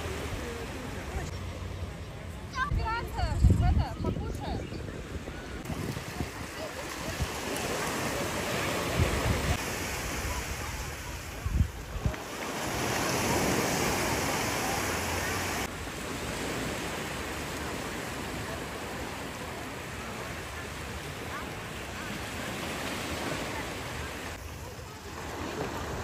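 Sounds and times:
surf washing up a beach: 0:00.0 - 0:03.0, 0:04.9 - 0:26.0
wind on the microphone: 0:02.6 - 0:15.7.

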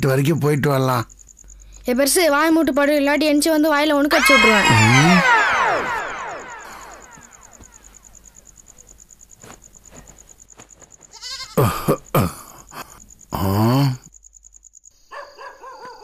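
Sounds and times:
goat bleating: 0:11.1 - 0:11.8.

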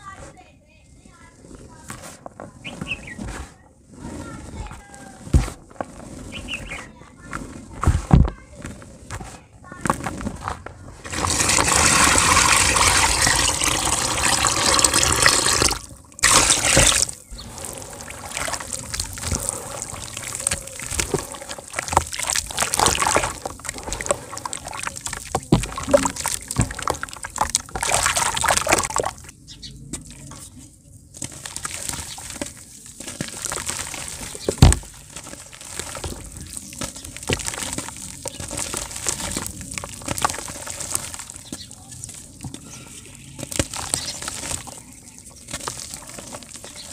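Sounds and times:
hands kneading wet dirt paste: 0:00.0 - 0:46.9
water pouring into plastic tub: 0:11.0 - 0:29.3, 0:31.1 - 0:46.9.

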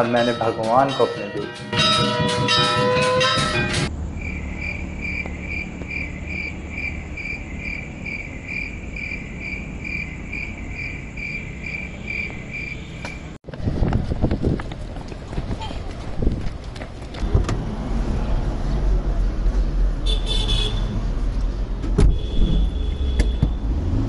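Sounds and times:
cricket chirping: 0:03.9 - 0:13.3.

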